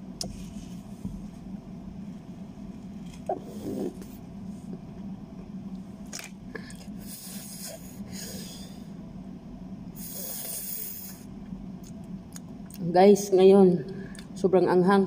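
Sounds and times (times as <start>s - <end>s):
steady low hum: 0.0s - 15.0s
person breathing hard: 6.5s - 9.0s.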